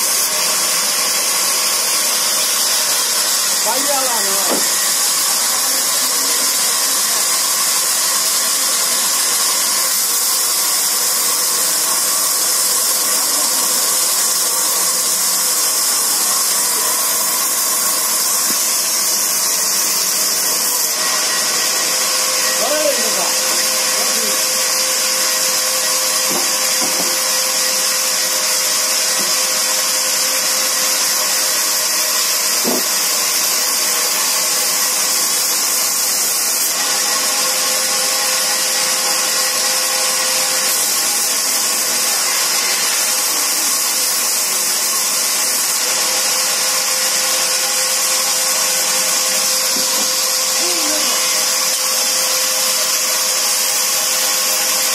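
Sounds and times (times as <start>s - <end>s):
band saw ripping through log: 0.0s - 54.9s.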